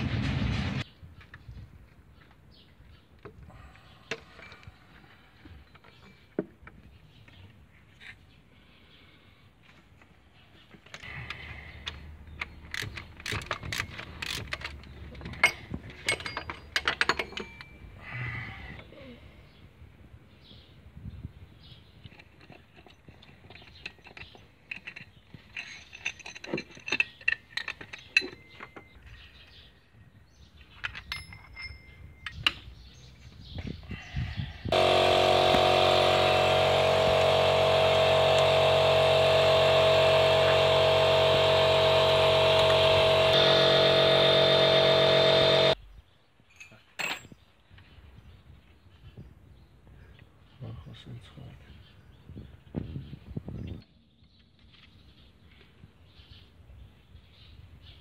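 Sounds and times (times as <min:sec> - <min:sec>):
metal tools clinking and rattling: 0:10.8 - 0:18.0, 0:22.0 - 0:29.7, 0:30.6 - 0:32.7, 0:46.4 - 0:47.5.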